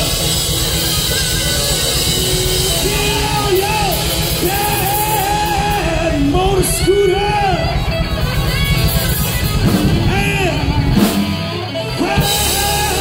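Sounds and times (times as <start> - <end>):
hard rock band playing: 0.0 - 13.0
male lead vocal singing: 2.0 - 8.0, 9.8 - 13.0.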